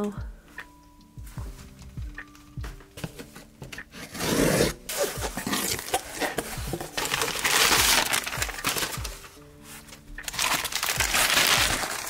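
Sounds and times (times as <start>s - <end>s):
cardboard and paper rustling: 3.0s - 12.0s
packing tape ripping: 3.9s - 9.4s, 10.2s - 12.0s.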